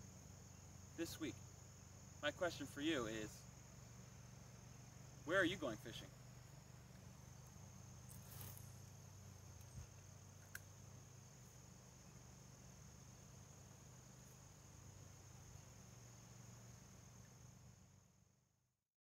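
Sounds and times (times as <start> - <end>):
crickets trilling: 0.0 - 18.6
faint clicks: 9.6 - 10.7.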